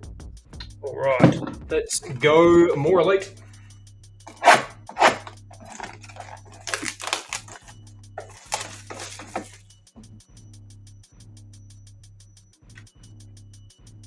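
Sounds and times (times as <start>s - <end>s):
packaging ripping: 4.3s - 9.6s
plastic wrap and cardboard crinkling: 4.3s - 9.6s.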